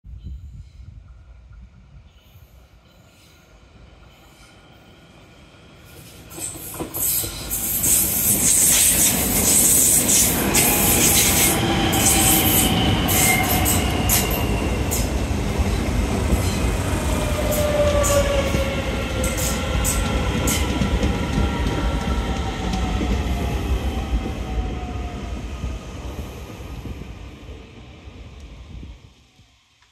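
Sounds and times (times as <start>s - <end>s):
electric train rumble: 0.2s - 29.8s
train wheels squealing: 2.0s - 15.2s, 16.4s - 20.8s.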